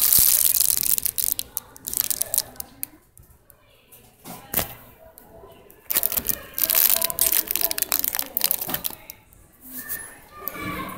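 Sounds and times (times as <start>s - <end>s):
plastic bag crinkling: 0.0s - 3.0s, 5.8s - 9.2s.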